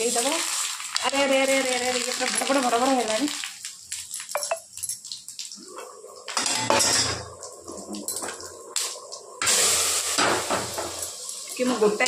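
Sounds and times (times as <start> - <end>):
pots and utensils clinking: 6.3 - 7.4, 8.0 - 8.4
hot pan hissing: 8.7 - 12.0.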